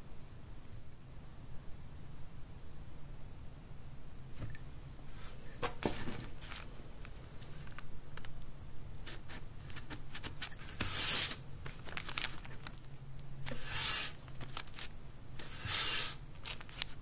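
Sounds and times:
faint low hum: 0.0 - 17.0
wooden edge rasping on paper: 10.8 - 11.4, 13.5 - 14.2, 15.4 - 16.2.

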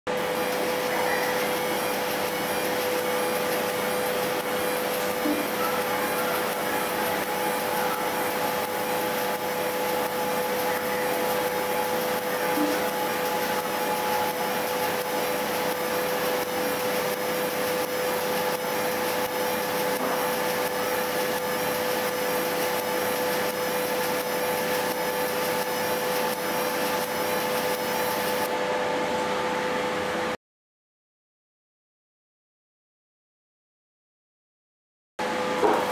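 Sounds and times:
machine hum: 0.1 - 30.4
laser engraving hiss: 0.2 - 28.5.

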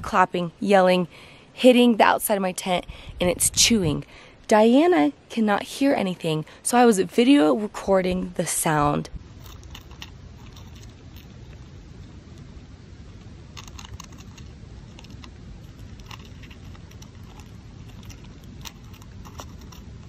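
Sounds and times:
low hiss: 0.0 - 20.0
animal chewing tent fabric: 9.2 - 20.0.

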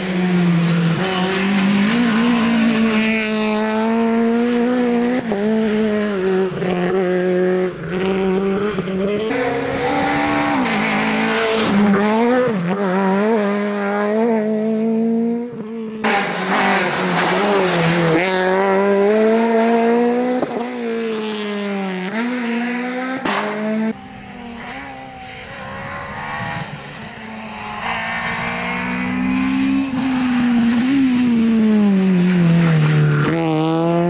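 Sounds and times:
rally car engine revving: 0.0 - 34.0
sharp crack: 23.2 - 23.6.

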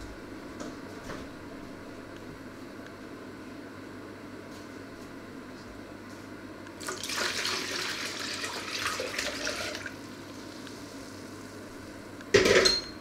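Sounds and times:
water pouring between jugs: 6.8 - 10.0.

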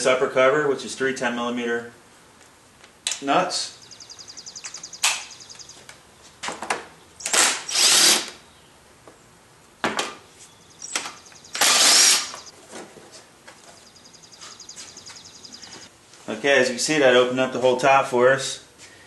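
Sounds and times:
cordless drill running: 7.3 - 8.3, 11.5 - 12.5.

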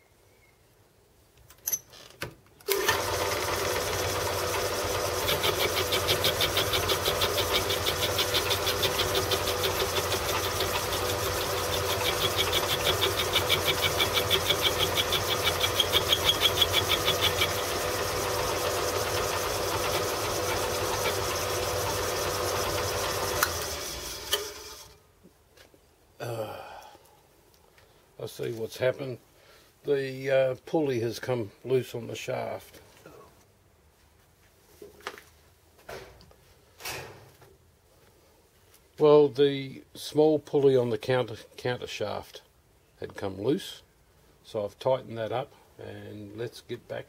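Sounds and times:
electric motor humming: 2.7 - 24.9.

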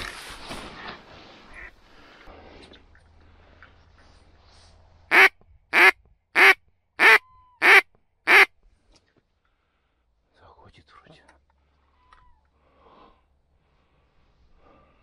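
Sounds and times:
duck quacks: 1.5 - 1.7, 5.1 - 8.5.

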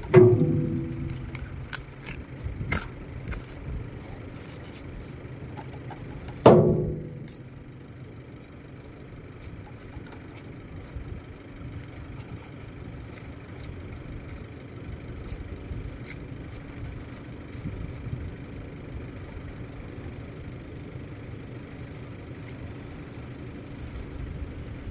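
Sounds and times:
loud multi-pitched ringing: 0.0 - 1.6
engine idling hum: 0.0 - 24.9.

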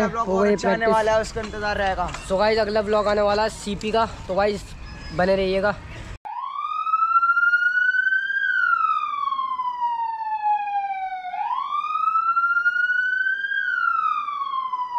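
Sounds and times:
siren wailing: 2.6 - 5.0, 6.3 - 14.9.

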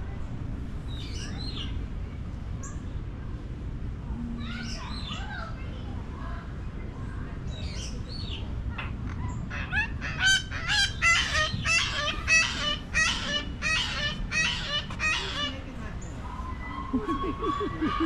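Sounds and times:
bird calling rapidly: 9.3 - 15.7.

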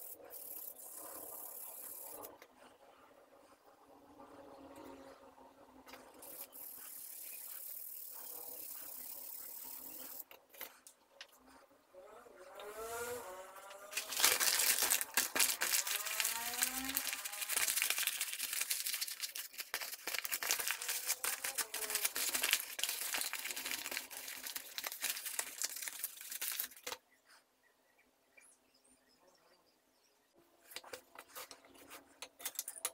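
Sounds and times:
paper crumpling: 13.8 - 27.0.

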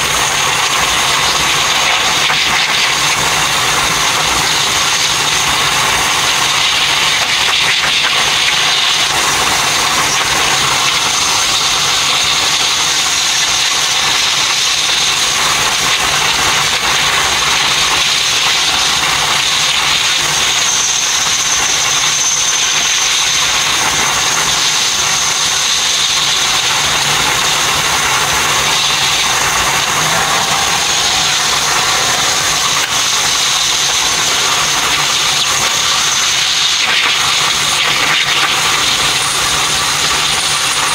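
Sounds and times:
thin high whine: 0.0 - 40.9
train running noise: 0.0 - 40.9.

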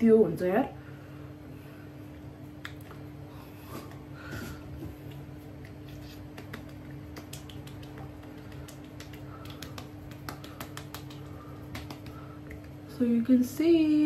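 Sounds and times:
steady low hum: 0.0 - 14.0
fingertips patting face: 4.8 - 12.9.

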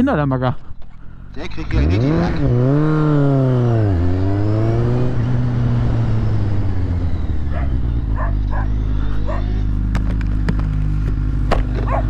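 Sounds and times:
motorcycle engine revving: 0.8 - 12.0
dog barking: 7.5 - 9.7, 11.8 - 12.0.

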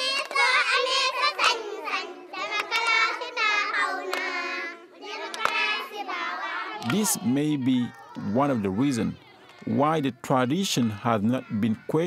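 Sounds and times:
girls singing together: 0.0 - 12.0
sharp hand claps: 2.6 - 3.0, 4.1 - 4.3, 5.3 - 5.6, 6.8 - 7.1.

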